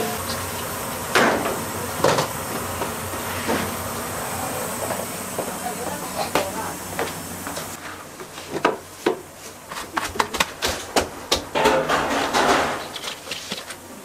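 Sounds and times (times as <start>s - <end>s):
containers knocking and clattering: 9.8s - 13.7s.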